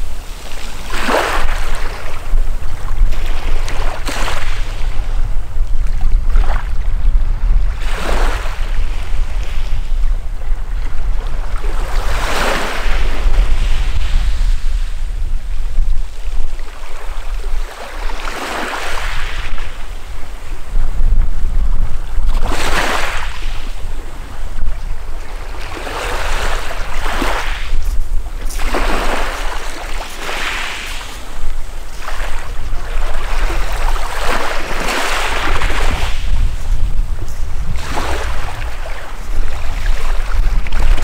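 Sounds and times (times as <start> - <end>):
waves washing over pebbles: 0.0 - 4.7, 25.4 - 41.0
steady low rumble: 35.7 - 41.0.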